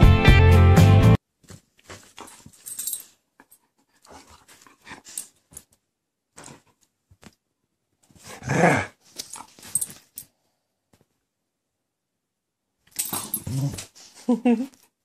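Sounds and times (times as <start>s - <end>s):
dog growl: 8.3s - 9.0s, 13.2s - 13.9s.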